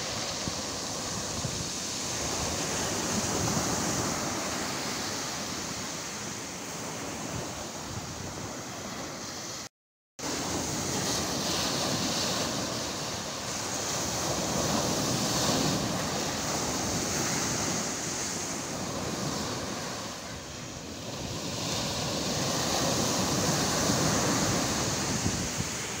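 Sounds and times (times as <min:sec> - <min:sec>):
wind buffeting microphone: 0:00.0 - 0:05.0, 0:10.4 - 0:26.0
waves breaking on pebble beach: 0:00.0 - 0:07.5, 0:10.2 - 0:26.0.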